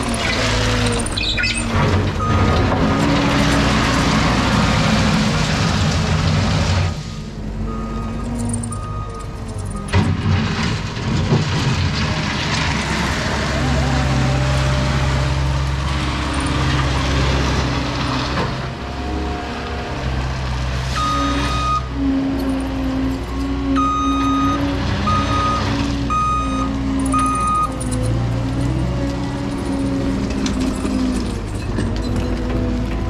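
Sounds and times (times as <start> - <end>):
diesel engine running: 0.0 - 33.0
reverse alarm beeping: 21.0 - 21.9, 23.8 - 27.8.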